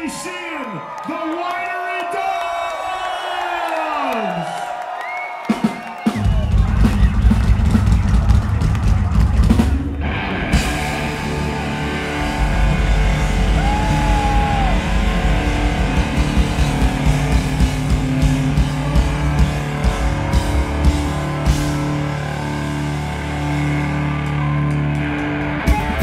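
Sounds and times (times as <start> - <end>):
drum kit: 5.4 - 26.0
electric bass: 6.2 - 26.0
distorted electric guitar: 6.5 - 26.0.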